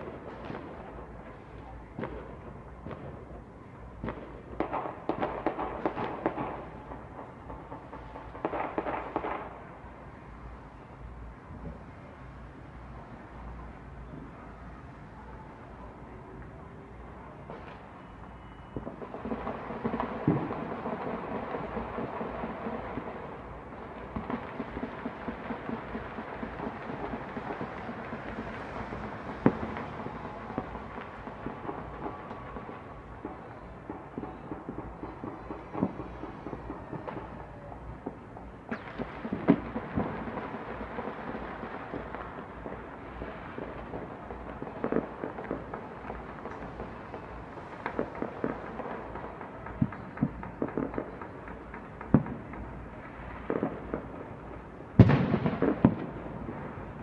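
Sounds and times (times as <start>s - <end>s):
fireworks popping: 0.0s - 9.8s, 17.4s - 57.0s.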